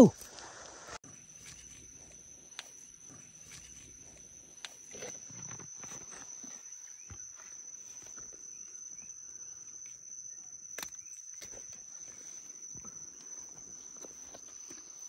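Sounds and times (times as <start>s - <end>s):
crickets chirring: 0.0s - 15.0s.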